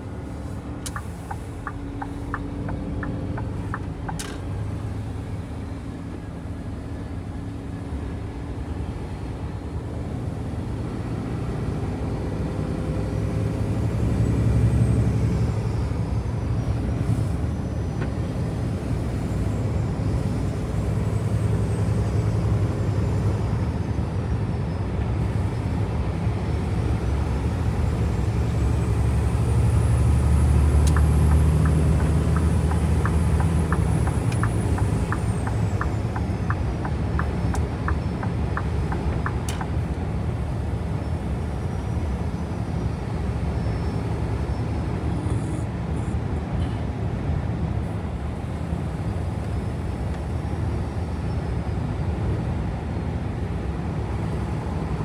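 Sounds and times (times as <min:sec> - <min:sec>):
wet road noise: 0:00.0 - 0:09.4, 0:25.1 - 0:51.2
truck engine droning: 0:00.0 - 0:55.0
regular ticks: 0:30.8 - 0:39.7.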